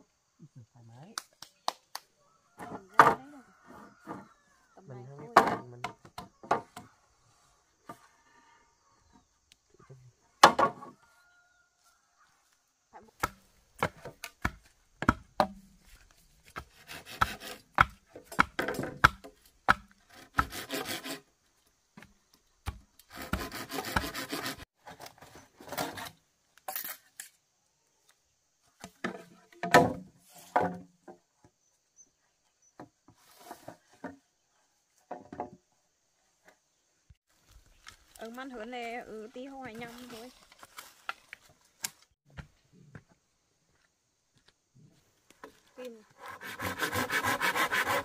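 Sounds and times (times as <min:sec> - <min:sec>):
blade rasping across bamboo: 0:16.4 - 0:19.1, 0:19.7 - 0:21.3, 0:22.7 - 0:25.0, 0:25.6 - 0:27.0, 0:45.9 - 0:48.0
sharp wooden knocks: 0:17.2 - 0:20.6.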